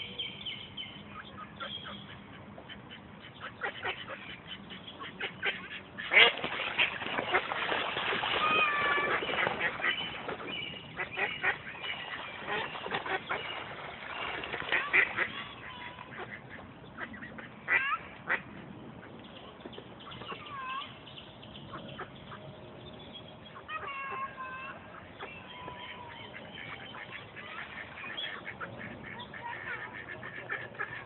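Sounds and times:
ducks quacking: 1.1 - 19.2, 23.5 - 31.0.

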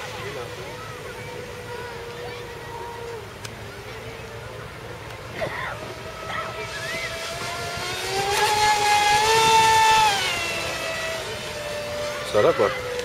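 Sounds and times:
electric motor whining: 0.0 - 13.0.

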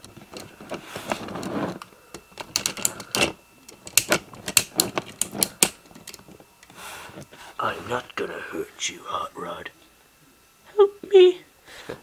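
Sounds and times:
rustle of handling toys: 0.0 - 8.0
plastic figures clicking: 2.4 - 6.2.

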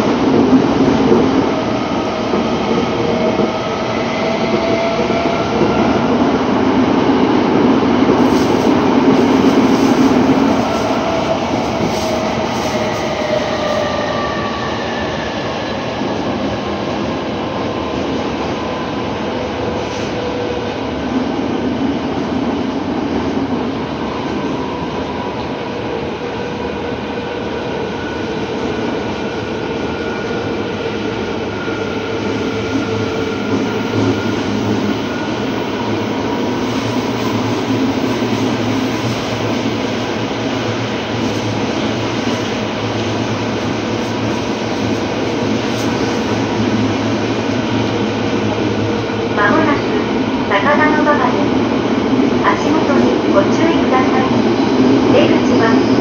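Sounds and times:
subway train wheels rumbling: 0.0 - 56.0
train whining tones: 8.1 - 16.6.

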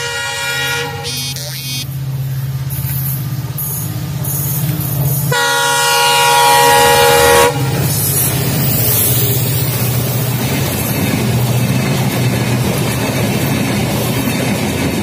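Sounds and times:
train horn blast: 0.0 - 1.4, 5.3 - 7.9
diesel locomotive engine running: 0.0 - 15.0
train wheels on rails: 0.0 - 15.0.

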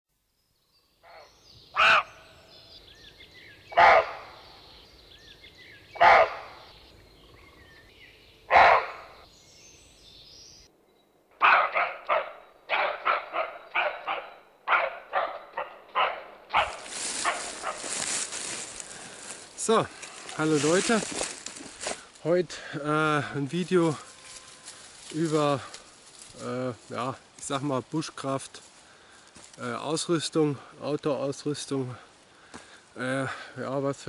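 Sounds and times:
faint bird chirps: 0.4 - 14.7
animal calling loudly: 1.0 - 2.3, 3.7 - 4.5, 5.9 - 6.8, 8.5 - 9.2, 11.4 - 17.8.

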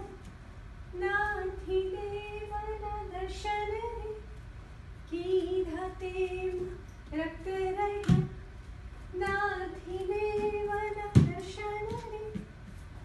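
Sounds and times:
woman singing: 1.0 - 4.2, 5.1 - 8.4, 9.1 - 12.5.

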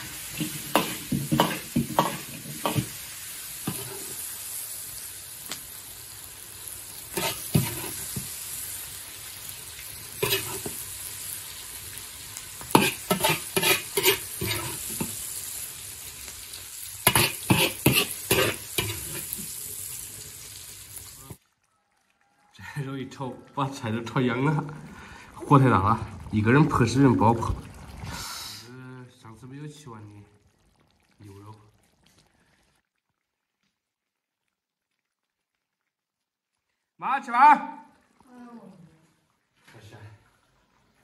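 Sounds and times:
metal ladle scraping wok: 0.0 - 3.0, 3.6 - 4.3, 7.1 - 8.3, 10.2 - 10.8, 12.7 - 15.2, 17.0 - 19.4
pork sizzling in hot oil: 0.0 - 38.2.

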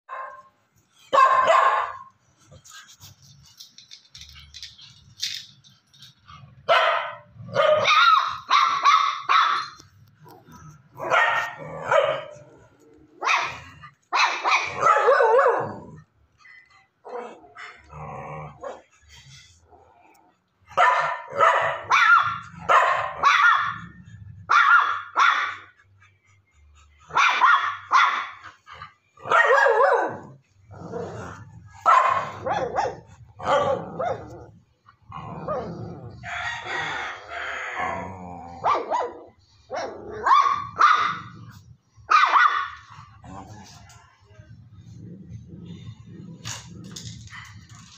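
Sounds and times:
dog barking: 0.1 - 0.5, 1.1 - 2.1, 6.7 - 9.8, 11.0 - 12.4, 13.2 - 15.8, 20.7 - 25.7, 27.1 - 28.4, 29.2 - 30.3, 31.8 - 34.4, 38.6 - 41.3, 42.1 - 42.9.

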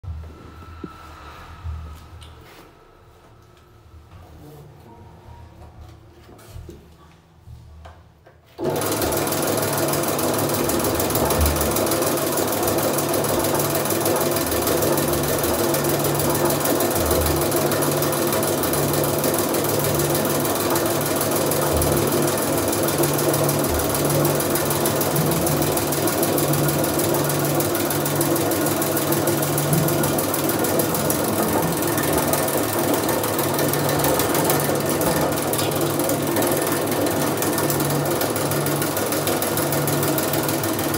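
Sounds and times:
drain-cleaning machine motor hum: 8.8 - 40.9.

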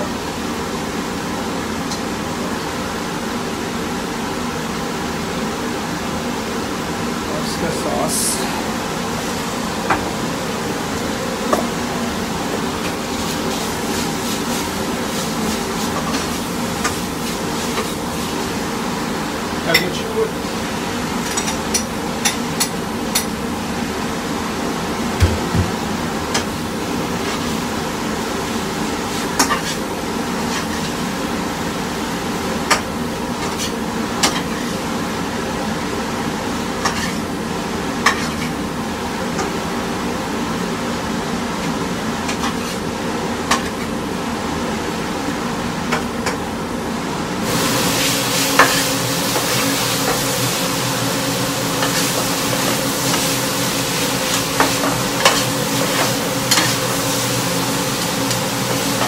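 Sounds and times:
food sizzling: 7.7 - 23.8, 25.4 - 35.2, 47.4 - 59.0
spatula scraping a wok: 29.1 - 29.8, 30.4 - 31.0, 54.2 - 57.3.

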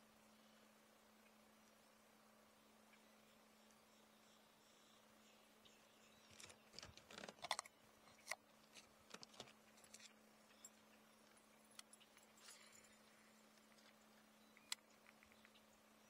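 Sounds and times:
faint low hum: 0.0 - 16.0
fishing rod and reel rattling: 6.3 - 10.8, 11.4 - 14.1.

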